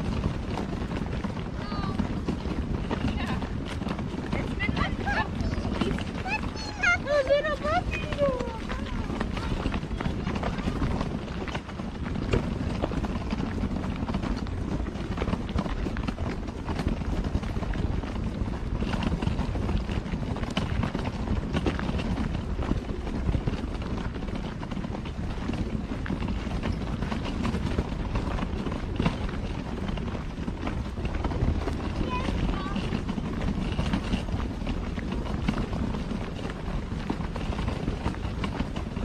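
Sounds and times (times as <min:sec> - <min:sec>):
footsteps on gravel: 0:00.7 - 0:38.9.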